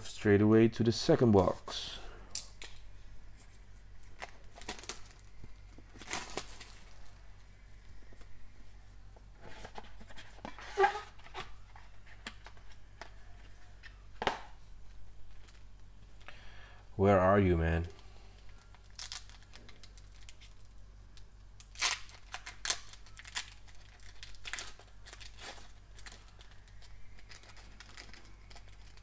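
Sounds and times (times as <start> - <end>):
plastic wrap rustling: 3.3 - 7.3, 18.5 - 29.0.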